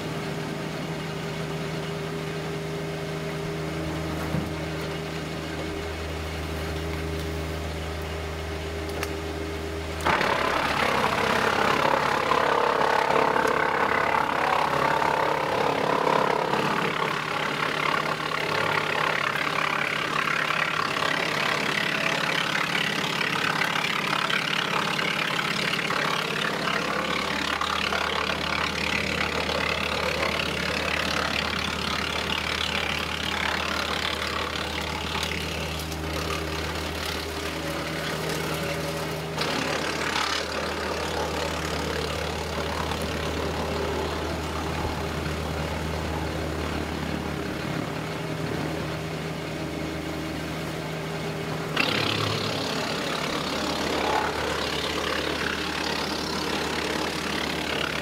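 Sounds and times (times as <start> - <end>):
deep hum: 0.0 - 58.0
wood chipper drone: 0.0 - 58.0
wood grinding rasp: 10.0 - 45.6, 51.8 - 58.0.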